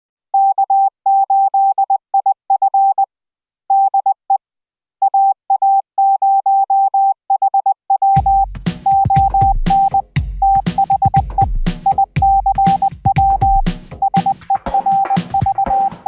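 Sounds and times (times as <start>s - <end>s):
morse code beeps: 0.4s - 3.1s, 5.0s - 16.0s
music with drum beat: 8.2s - 16.0s.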